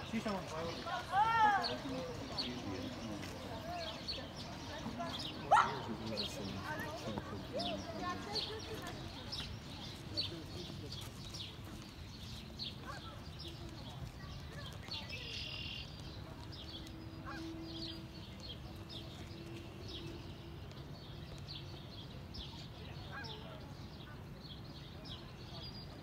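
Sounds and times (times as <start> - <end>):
marsh birds chirping: 0.0 - 26.0
geese honking: 17.2 - 18.0.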